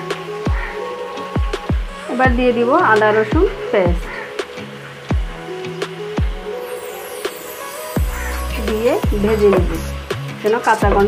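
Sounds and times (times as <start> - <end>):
electronic music held tones: 6.2 - 11.0
deep bass hits: 8.0 - 11.0.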